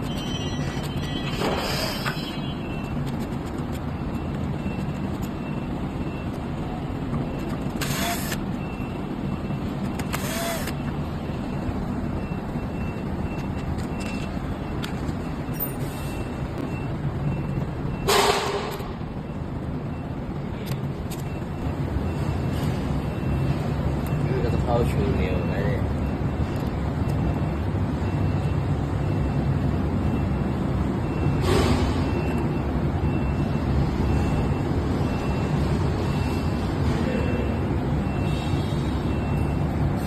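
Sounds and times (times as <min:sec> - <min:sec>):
workshop background hum: 0:00.0 - 0:16.8.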